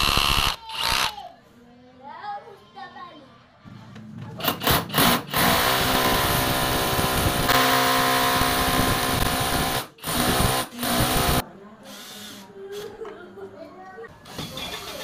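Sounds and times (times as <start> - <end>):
hammer drill drilling into wall: 0.0 - 1.1, 4.6 - 11.4.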